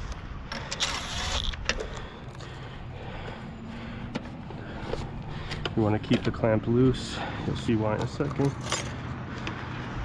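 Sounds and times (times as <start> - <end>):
metal clamp clicks and scrapes: 8.0 - 9.6.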